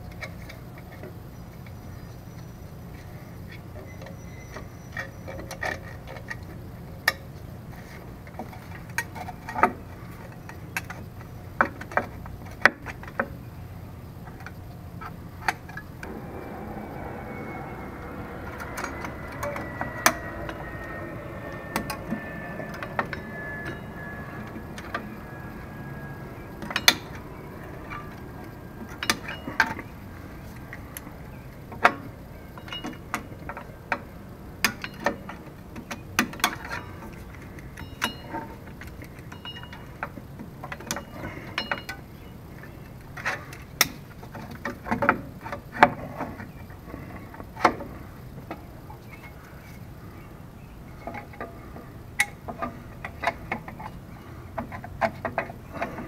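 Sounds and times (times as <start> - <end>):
faint high tone sliding down: 15.5 - 37.4.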